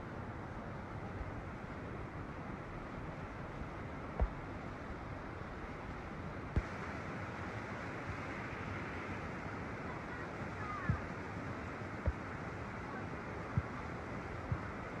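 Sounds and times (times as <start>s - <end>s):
water rushing: 0.0s - 15.0s.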